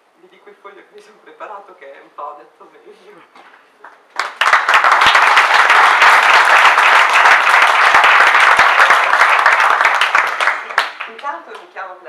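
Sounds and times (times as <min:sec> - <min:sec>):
audience applauding: 0:03.8 - 0:11.3.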